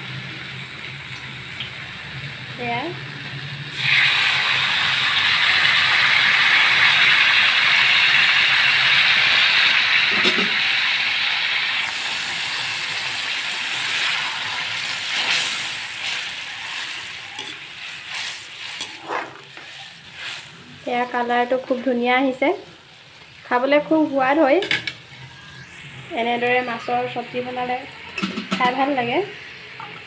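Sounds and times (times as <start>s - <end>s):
hot oil hissing and sizzling: 0.0s - 30.0s
pan bubbling: 15.8s - 22.1s.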